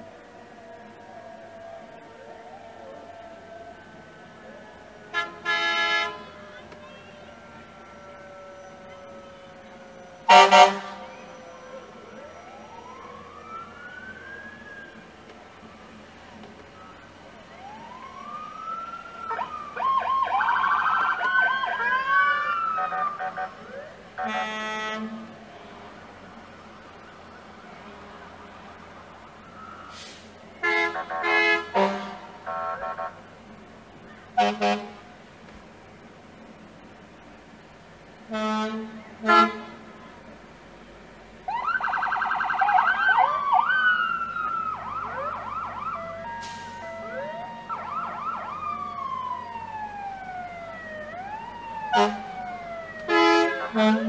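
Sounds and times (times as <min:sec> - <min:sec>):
emergency sirens wailing: 0:00.0 - 0:54.0
emergency vehicle horn blasts: 0:05.0 - 0:12.2, 0:22.6 - 0:25.5, 0:29.9 - 0:33.3, 0:34.4 - 0:35.1, 0:38.2 - 0:40.0, 0:45.4 - 0:48.4, 0:51.7 - 0:54.0
siren warbling: 0:06.3 - 0:15.0, 0:41.5 - 0:54.0
horn blast: 0:10.3 - 0:11.2, 0:30.6 - 0:33.2, 0:38.3 - 0:39.9, 0:53.1 - 0:54.0.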